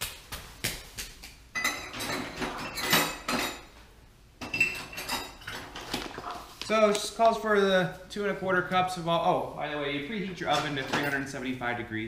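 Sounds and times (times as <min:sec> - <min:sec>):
utensils clinking: 0:01.6 - 0:03.7, 0:04.4 - 0:06.4.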